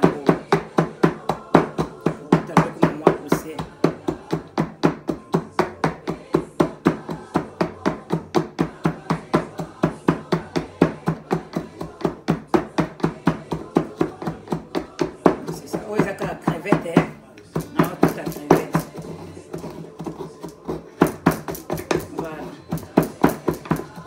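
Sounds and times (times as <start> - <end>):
rapid chopping strikes: 0.0 - 24.0.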